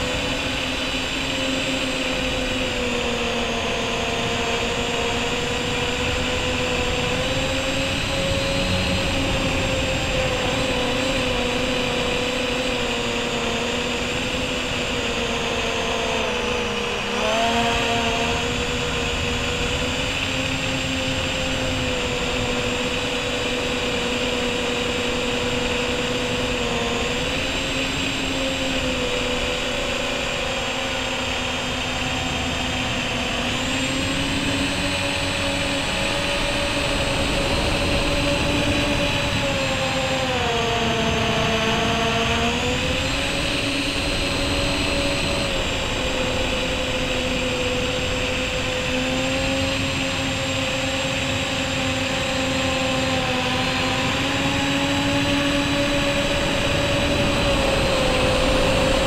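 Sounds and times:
drone motors whining: 0.0s - 59.0s.

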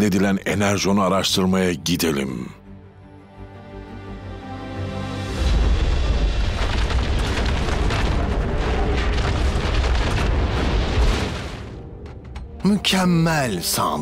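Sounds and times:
deep rumbling: 5.3s - 12.9s
rock cracking and breaking: 5.4s - 12.6s.

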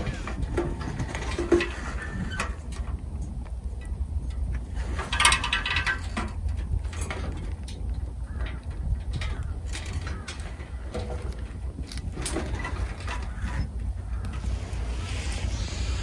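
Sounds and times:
metal squeak: 0.0s - 2.7s, 9.2s - 16.0s
steady low rumble: 0.0s - 16.0s.

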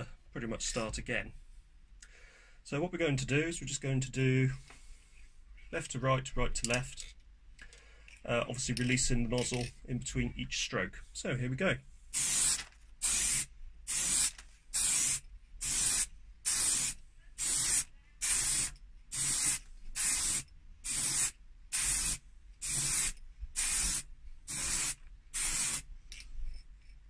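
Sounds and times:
aerosol spray can hissing: 12.2s - 25.9s.

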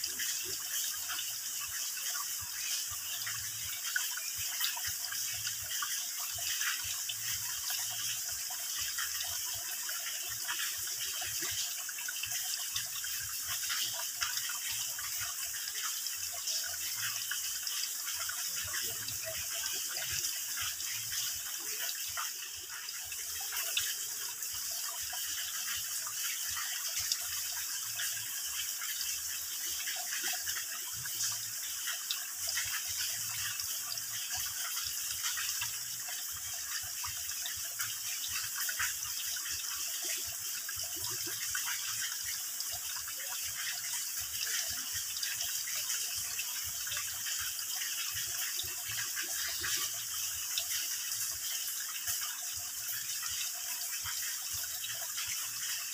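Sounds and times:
water dripping into a pool: 0.0s - 55.9s.

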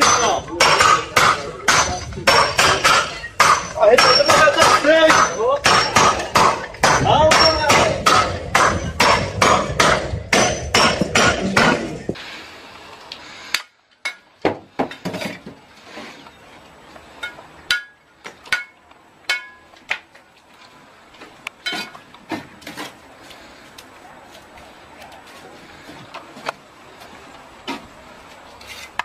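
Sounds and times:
sledgehammers striking a stake: 0.0s - 12.1s, 17.2s - 20.1s.

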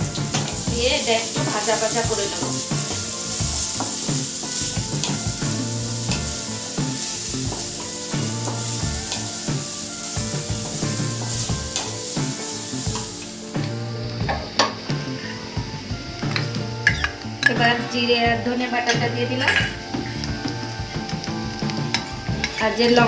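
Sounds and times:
spatula tapping pan: 0.0s - 17.9s, 18.8s - 23.0s
onions sizzling in hot oil: 0.0s - 23.0s.

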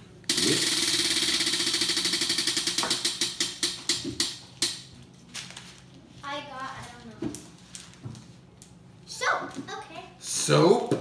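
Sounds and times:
prize wheel pointer ticking: 0.3s - 4.8s.

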